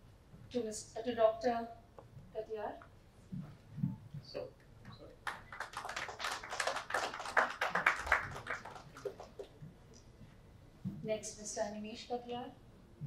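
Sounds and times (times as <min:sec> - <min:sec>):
audience applauding: 0:05.2 - 0:09.6.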